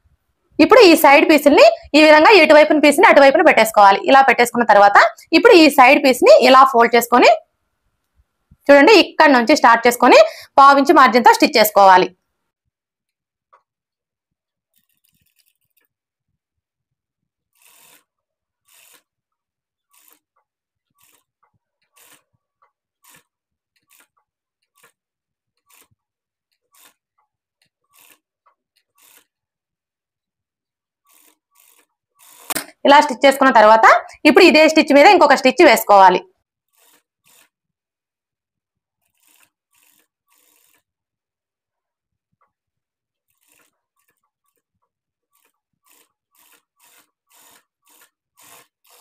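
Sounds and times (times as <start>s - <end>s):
sewing machine stitching: 14.7s - 16.0s, 17.4s - 29.5s, 31.0s - 32.8s, 36.6s - 37.6s, 39.0s - 41.0s, 43.2s - 49.0s.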